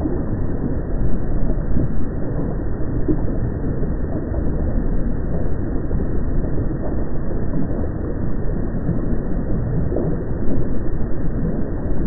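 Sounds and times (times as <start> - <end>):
low rumbling noise: 0.0 - 12.0.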